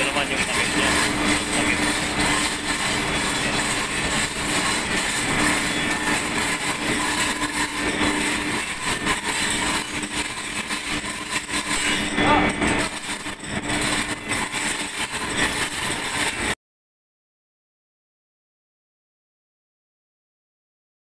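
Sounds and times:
engine room machinery din: 0.0 - 16.6.

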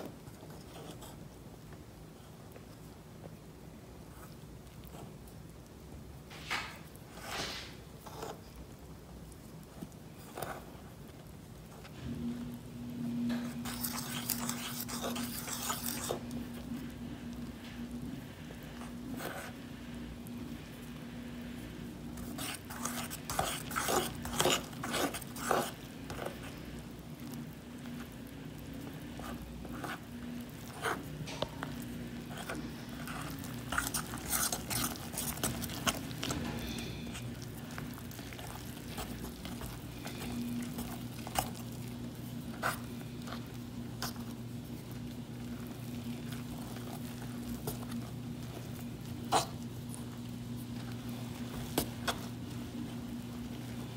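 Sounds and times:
steady low hum: 0.0 - 53.9
fork scraping ceramic bowl: 13.3 - 16.3, 22.2 - 26.3, 32.3 - 37.4.

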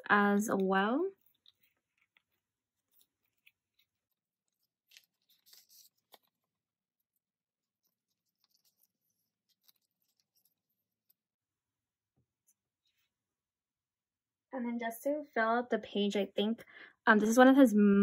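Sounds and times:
plastic sleeves rustling: 0.5 - 11.4.

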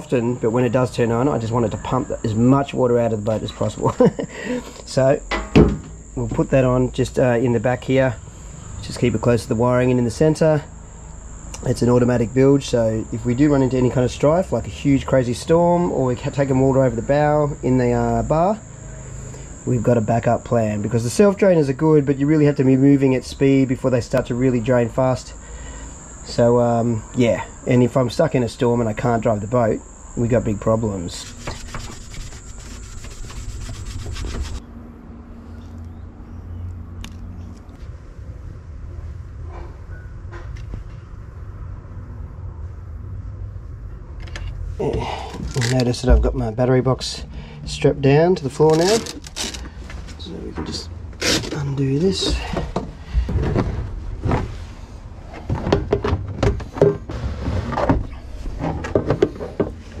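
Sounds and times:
cricket chirring: 0.0 - 37.4, 43.9 - 53.2
plastic pump rubbing on metal hull: 31.1 - 34.6, 51.2 - 51.6
plastic box clicks and scrapes: 48.7 - 49.7.

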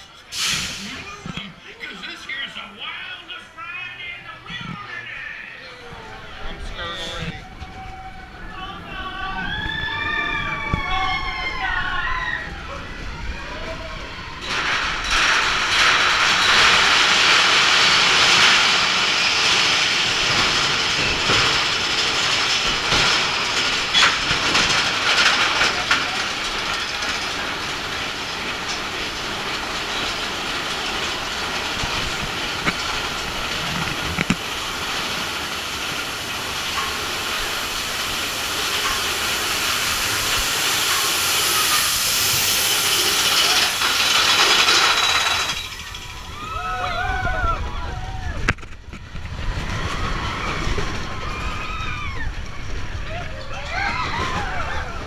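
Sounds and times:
roller coaster rattling on track: 0.0 - 55.0
clanks and knocks: 14.4 - 46.6.

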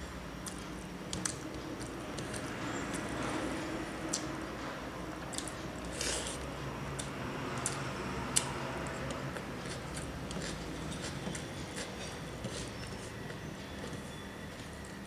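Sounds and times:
fingers mixing rice on metal plate: 9.0 - 14.0.

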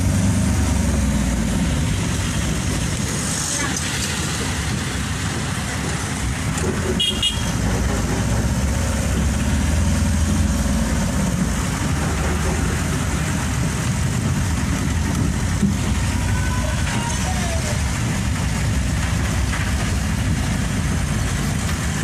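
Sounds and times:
tires on wet road: 0.0 - 22.0
traffic and engine rumble: 0.0 - 22.0
high horn toot: 7.0 - 7.5.

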